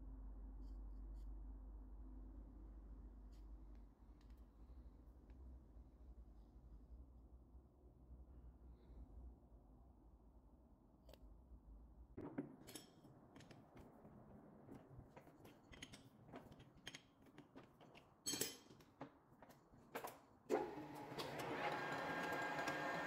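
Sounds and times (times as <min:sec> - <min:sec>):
lathe spindle whine: 0:20.5 - 0:23.0.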